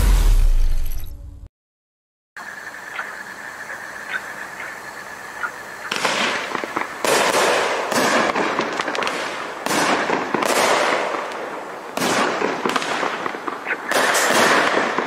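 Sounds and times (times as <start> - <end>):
firework bursts: 5.7 - 15.0
rapid small crackling pops: 5.9 - 15.0.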